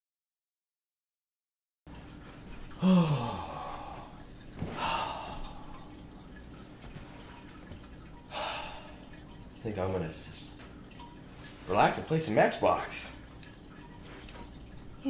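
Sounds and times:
man sighing: 2.8s - 4.0s
breathy exhale: 2.8s - 5.7s, 8.3s - 9.0s.

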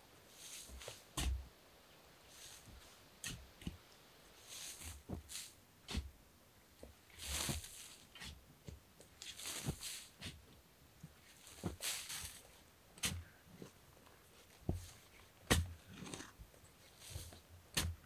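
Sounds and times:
sand spilling onto heap: 0.3s - 1.0s, 2.3s - 2.9s, 4.4s - 5.6s, 7.2s - 8.0s, 9.2s - 10.3s, 11.4s - 12.4s
shovel digging sandy soil: 4.4s - 6.1s, 7.2s - 8.4s, 9.2s - 10.4s, 11.4s - 12.4s, 13.0s - 13.4s, 15.5s - 18.0s.

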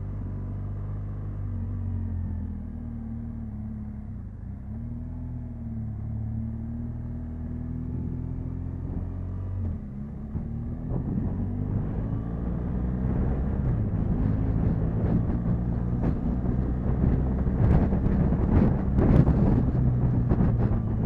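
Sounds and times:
motorcycle engine running: 0.0s - 21.0s
wind rush over microphone: 10.7s - 21.0s.

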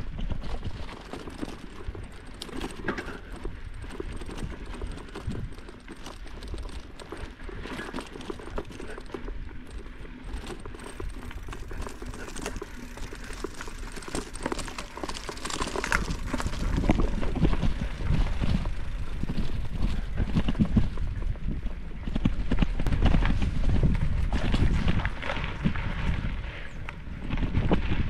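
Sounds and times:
bike rattling and clattering: 0.0s - 28.0s
wind rumble on microphone: 0.0s - 28.0s.

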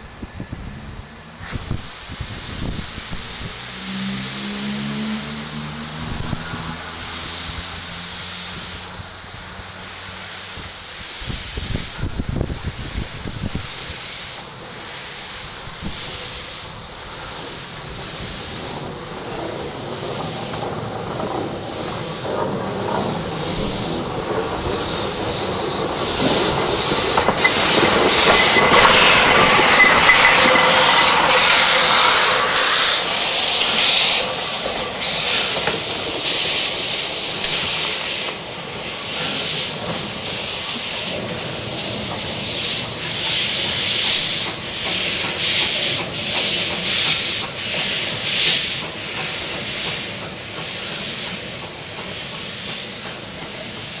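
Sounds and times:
steam locomotive hissing steam: 0.0s - 54.0s.

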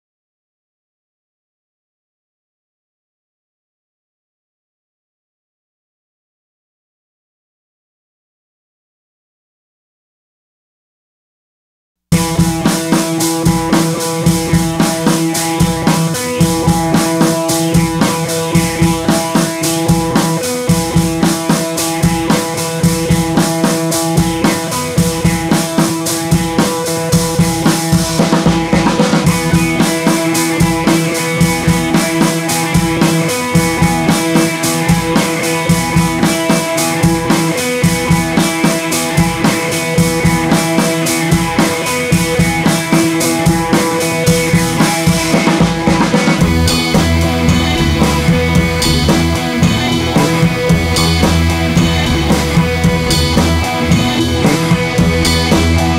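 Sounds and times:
drum-kit beat: 12.1s - 55.9s.

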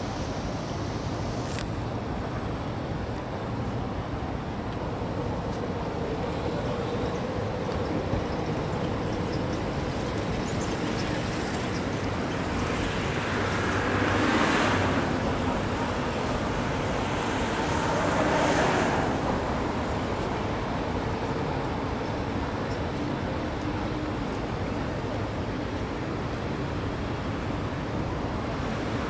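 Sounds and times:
city road traffic: 0.0s - 29.0s
vehicles passing: 1.3s - 29.0s.

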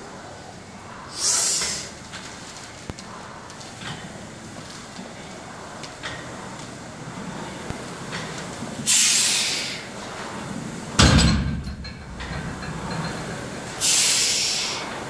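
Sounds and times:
sharp hissing breath: 1.0s - 2.0s, 8.9s - 9.9s, 13.8s - 14.9s.

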